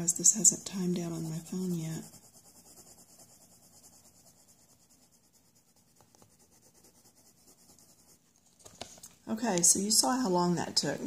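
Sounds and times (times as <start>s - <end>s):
pencil scratching on paper: 0.0s - 8.4s.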